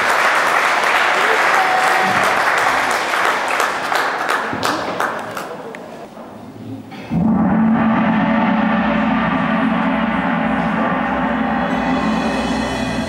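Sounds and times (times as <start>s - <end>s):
gong ringing: 7.1s - 13.0s.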